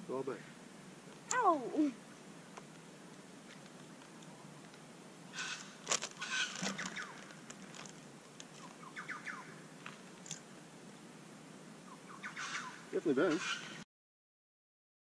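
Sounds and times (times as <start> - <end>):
campfire crinkling and clicking: 2.5 - 4.9, 5.5 - 8.9, 9.8 - 10.6.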